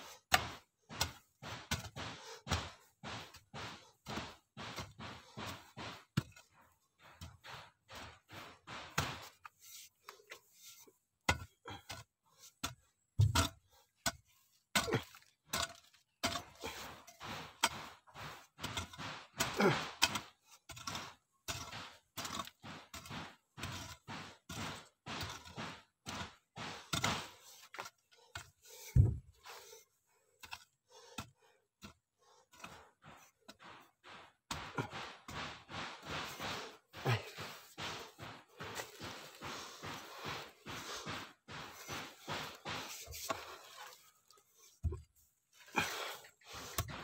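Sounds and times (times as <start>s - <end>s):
hoe chopping into dry soil: 0.0s - 9.9s, 14.8s - 29.8s, 32.6s - 44.0s
soil scraping: 0.0s - 47.0s.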